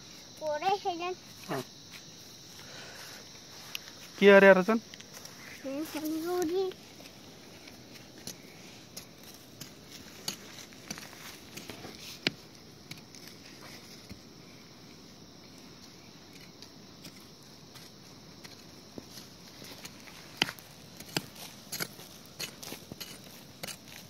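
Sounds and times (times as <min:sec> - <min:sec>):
hand hoe chopping dry soil: 0:07.0 - 0:14.3, 0:16.3 - 0:24.0.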